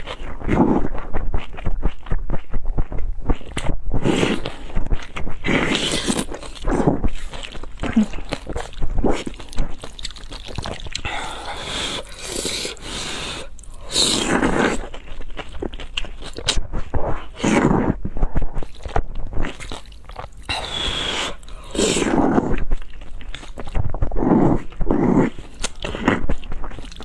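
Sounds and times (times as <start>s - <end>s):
mouth smacking and chewing: 0.0s - 27.0s
noodles slurping: 0.0s - 27.0s.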